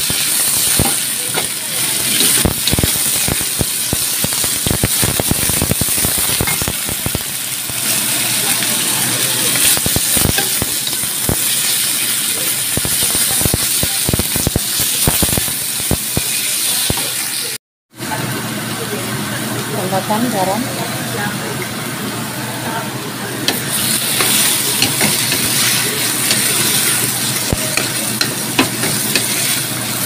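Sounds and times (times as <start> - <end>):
vegetables sizzling in oil: 0.0 - 30.0.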